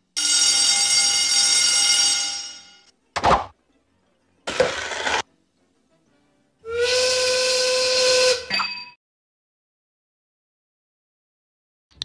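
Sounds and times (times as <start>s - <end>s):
steam whistle blowing: 6.6s - 8.7s.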